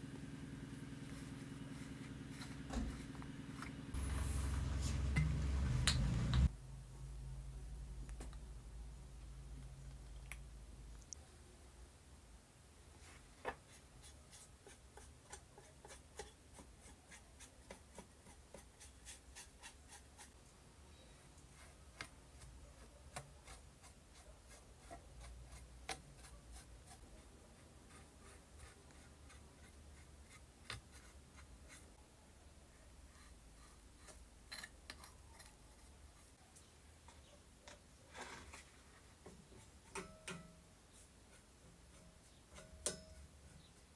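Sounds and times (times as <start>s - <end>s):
low steady hum: 0.0s - 13.1s.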